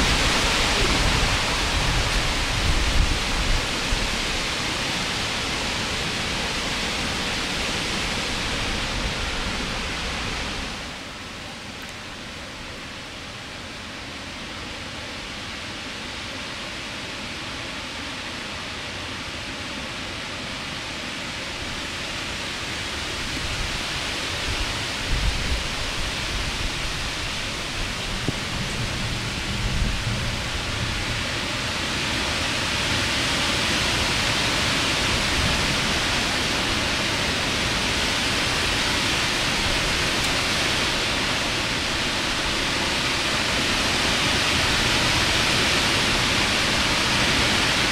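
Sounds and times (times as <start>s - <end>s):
heavy rain and wind: 0.0s - 47.9s
thunder rumbles: 27.6s - 31.7s.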